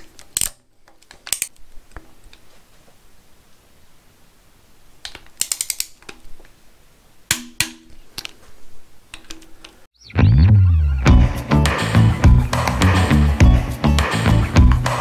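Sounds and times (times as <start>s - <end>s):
loud background music: 10.9s - 15.0s.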